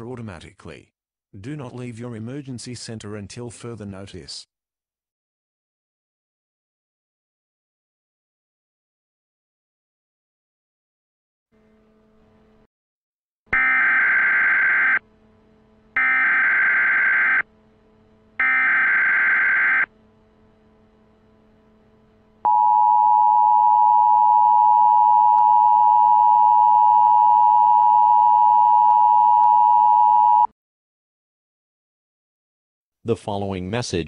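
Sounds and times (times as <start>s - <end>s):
buzzy data tones: 13.6s - 15.1s, 15.9s - 17.5s, 18.4s - 23.2s.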